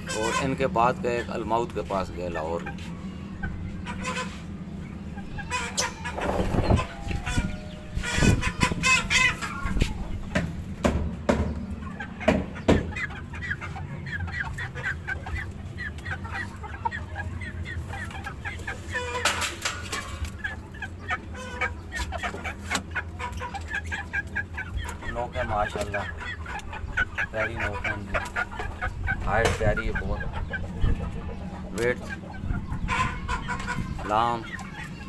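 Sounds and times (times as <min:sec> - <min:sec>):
chicks clucking and chirping: 0:00.0 - 0:35.0
steady low hum: 0:00.0 - 0:35.0
sharp knocks: 0:10.3 - 0:11.6, 0:12.2 - 0:12.9.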